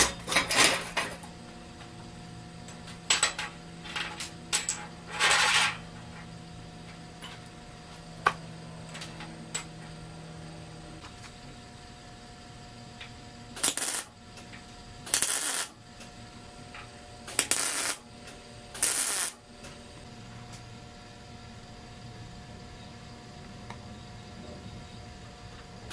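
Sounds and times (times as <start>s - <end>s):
metal brackets clinking on steel table: 2.7s - 6.1s
tack welding bursts: 13.5s - 14.2s, 15.0s - 15.8s, 17.2s - 18.1s, 18.7s - 19.4s.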